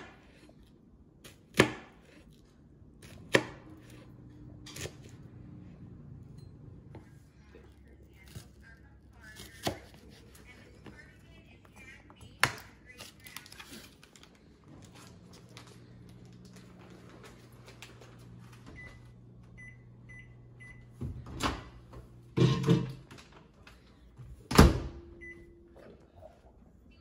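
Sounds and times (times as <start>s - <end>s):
low steady hum: 0.0s - 27.0s
microwave keypad beeps: 18.7s - 21.0s, 25.2s - 25.6s.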